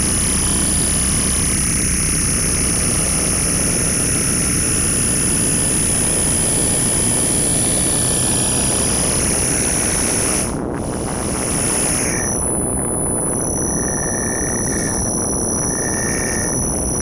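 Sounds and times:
electronic noise drone: 0:00.0 - 0:17.0
high whistle: 0:11.5 - 0:17.0.

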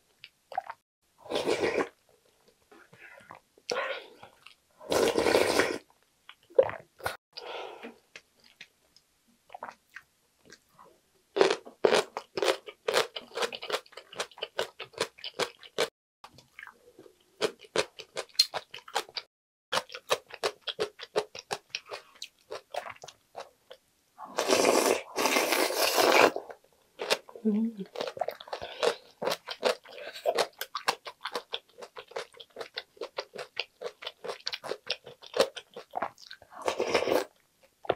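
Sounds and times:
slurping soup: 0:00.6 - 0:02.0, 0:04.8 - 0:05.9, 0:24.2 - 0:26.5, 0:36.6 - 0:37.3
slurping noodles: 0:01.2 - 0:02.0, 0:04.8 - 0:05.9, 0:24.2 - 0:26.4, 0:36.6 - 0:37.3.

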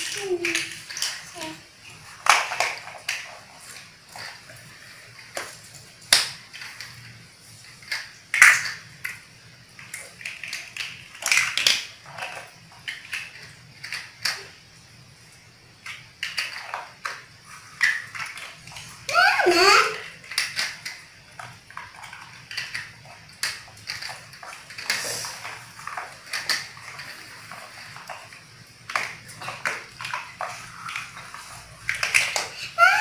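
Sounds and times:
plastic toy blocks clicking: 0:00.0 - 0:14.7, 0:15.8 - 0:33.0.

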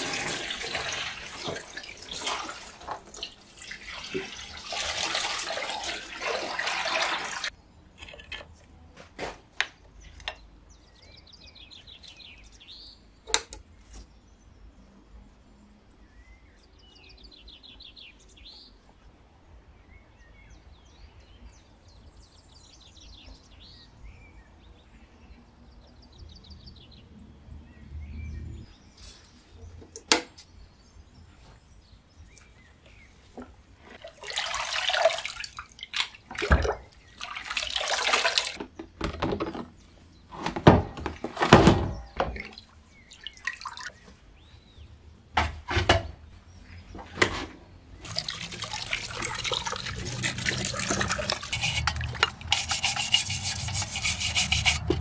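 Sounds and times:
liquid splashing into plastic tub: 0:00.0 - 0:07.5, 0:34.0 - 0:39.4, 0:40.6 - 0:44.0, 0:48.0 - 0:55.0
water stream pouring: 0:00.0 - 0:07.5, 0:34.0 - 0:38.6, 0:42.4 - 0:44.0, 0:48.0 - 0:55.0
faint birdsong: 0:07.5 - 0:34.0, 0:35.3 - 0:55.0.

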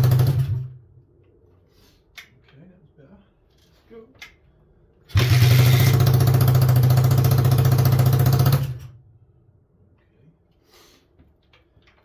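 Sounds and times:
motorcycle engine running: 0:00.0 - 0:00.7, 0:05.1 - 0:08.9.

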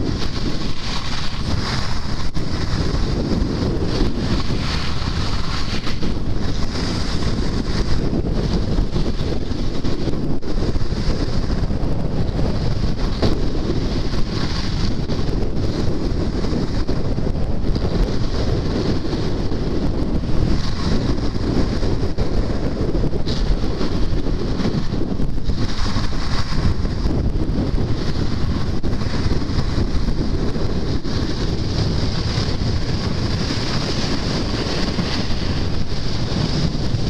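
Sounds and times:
skis hissing on snow: 0:00.0 - 0:11.8, 0:25.5 - 0:27.2, 0:31.1 - 0:37.0
wind buffeting microphone: 0:00.0 - 0:37.0.

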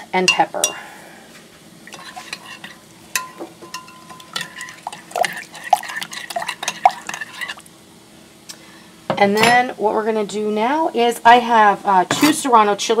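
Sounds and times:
metal spoon clinking on glass: 0:02.3 - 0:05.3.

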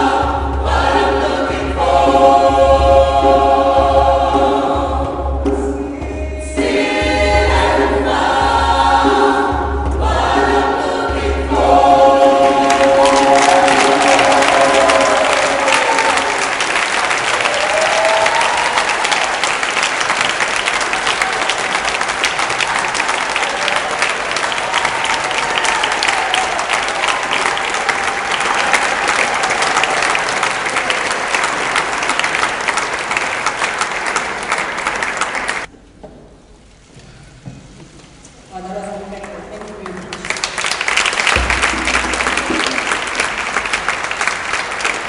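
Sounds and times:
choir singing: 0:00.0 - 0:16.6
audience applauding: 0:12.5 - 0:35.7, 0:39.8 - 0:45.0.

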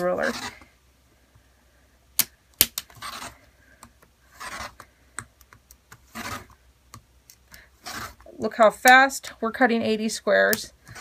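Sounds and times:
rotary cutter slicing fabric: 0:04.3 - 0:04.8, 0:06.1 - 0:06.5, 0:07.8 - 0:08.2.

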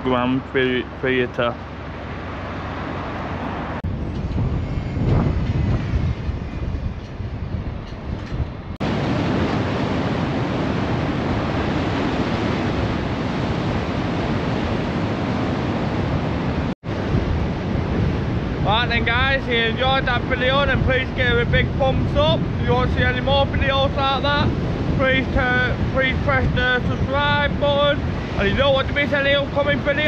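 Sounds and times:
wind rumbling on microphone: 0:01.6 - 0:30.0
sea surf washing against seawall: 0:08.8 - 0:30.0.

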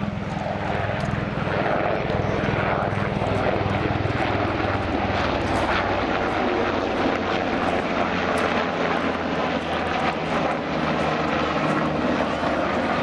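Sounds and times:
helicopter flying past: 0:00.0 - 0:13.0.

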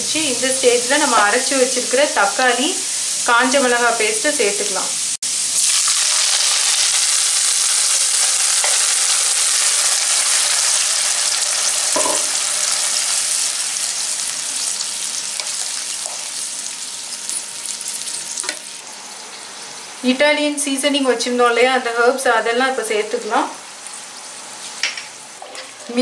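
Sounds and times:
paste sizzling in hot oil: 0:00.2 - 0:18.9.

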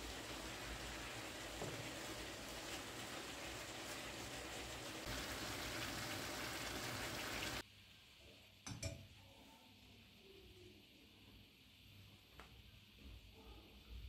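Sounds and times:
food sizzling in frying pan: 0:00.0 - 0:07.7.

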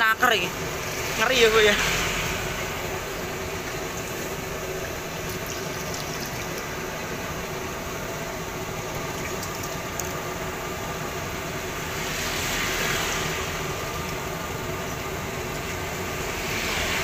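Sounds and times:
traffic hum: 0:00.0 - 0:17.0
water pouring: 0:00.8 - 0:10.5.

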